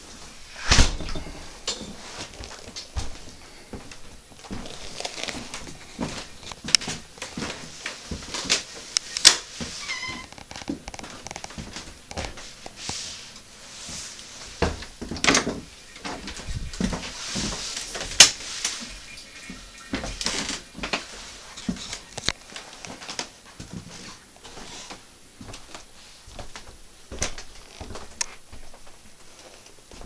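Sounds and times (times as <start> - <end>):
short high door squeak: 9.8 - 10.3.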